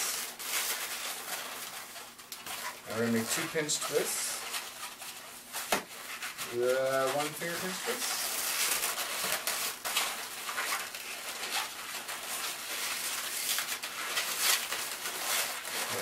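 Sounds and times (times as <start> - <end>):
balloon squeaking and rubbing: 0.0 - 16.0.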